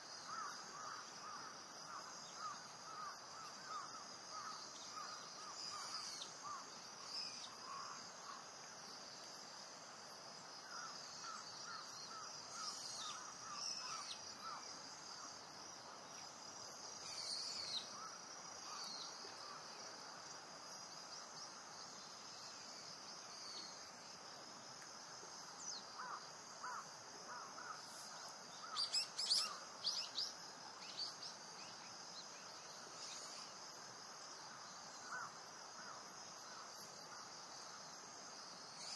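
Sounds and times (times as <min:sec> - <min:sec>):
insects humming: 0:00.0 - 0:38.9
small birds chirping: 0:17.0 - 0:19.2, 0:27.6 - 0:32.4.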